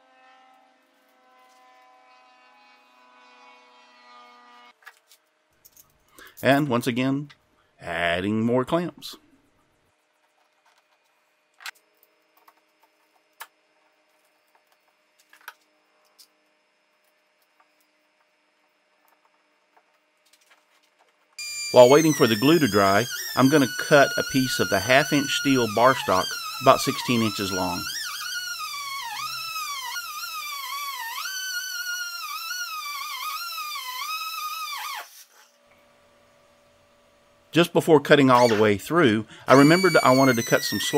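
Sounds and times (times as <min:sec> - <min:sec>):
angle grinder cutting steel: 0:21.4 - 0:35.5, 0:38.3 - 0:38.7, 0:39.5 - 0:40.9.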